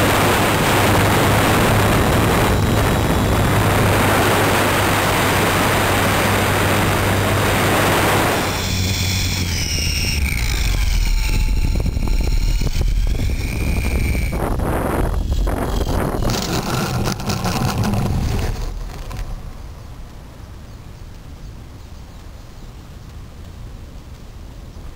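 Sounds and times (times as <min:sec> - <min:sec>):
electric motor whine: 0:00.0 - 0:19.6
wind buffeting microphone: 0:00.0 - 0:21.7.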